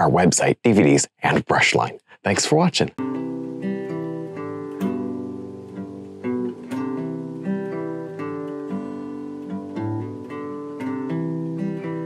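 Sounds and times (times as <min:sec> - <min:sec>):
plucked acoustic guitar tune: 0:03.0 - 0:12.0.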